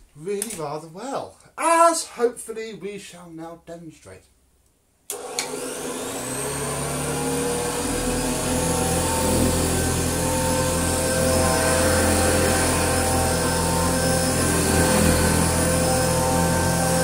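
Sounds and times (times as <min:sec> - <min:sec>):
vacuum cleaner switch click: 0:05.1 - 0:05.8
vacuum cleaner motor whine: 0:05.1 - 0:17.0.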